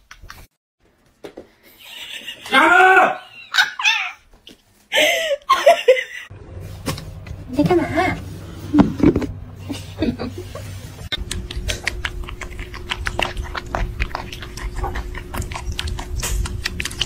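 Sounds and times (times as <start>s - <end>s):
kittens suckling: 11.1s - 17.0s.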